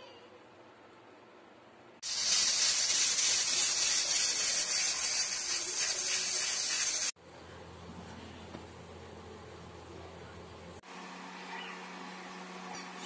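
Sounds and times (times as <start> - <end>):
pressure cooker steam hiss: 2.0 - 7.2.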